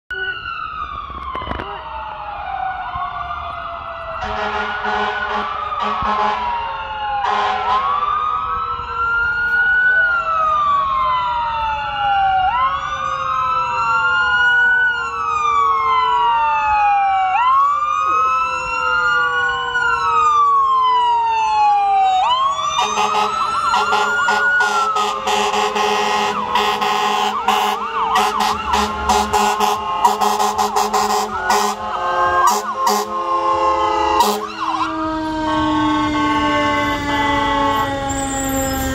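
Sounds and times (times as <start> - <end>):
fire engine sirens wailing: 0.1 - 38.9
steady siren tones: 0.1 - 38.9
rapid sharp siren pulses: 15.1 - 38.9.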